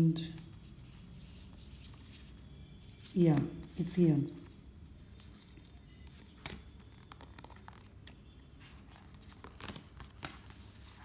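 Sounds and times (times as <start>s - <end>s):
cards rustling and clicking: 5.1s - 8.2s, 8.8s - 11.0s.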